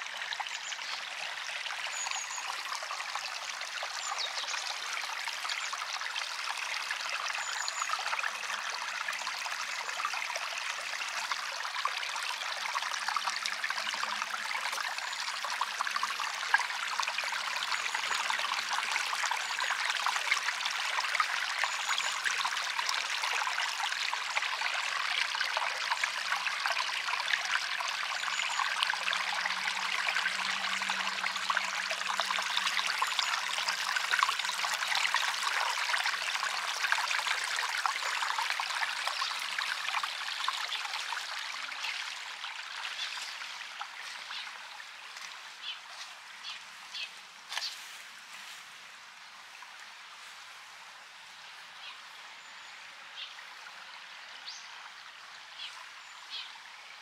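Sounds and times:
stream babbling: 0.0s - 57.0s.

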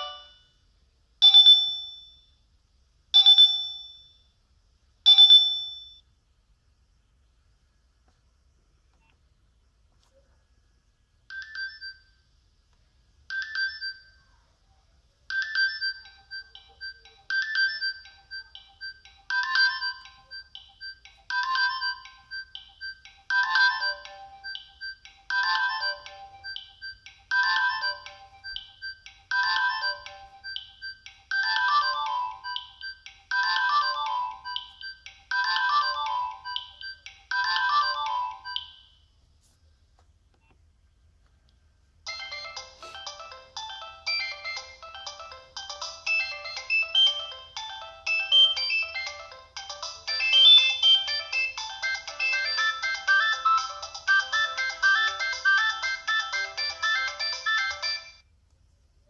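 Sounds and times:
phone ringtone: 0.0s - 0.6s, 1.2s - 2.4s, 3.2s - 4.3s, 5.1s - 6.0s, 11.3s - 12.2s, 13.3s - 14.2s, 15.3s - 39.0s, 42.1s - 58.2s.

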